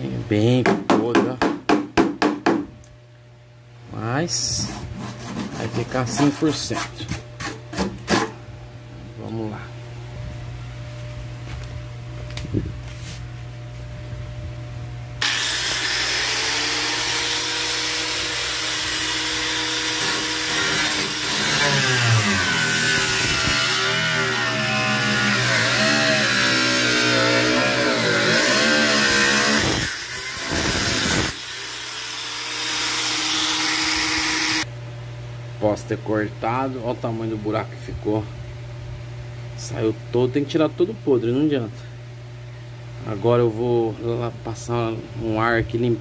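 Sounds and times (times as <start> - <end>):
grinder cutting sheet metal: 15.2 - 34.6
angle grinder whining: 15.2 - 34.7.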